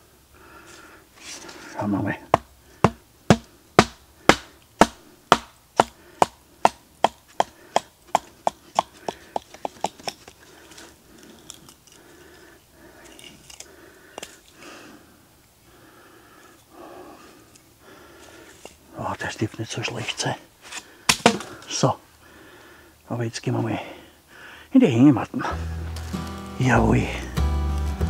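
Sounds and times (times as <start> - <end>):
wood scraping strokes: 0.7 - 12.4, 19.9 - 21.6, 25.5 - 28.0
hatchet chopping wood: 2.3 - 10.3, 21.1 - 21.6.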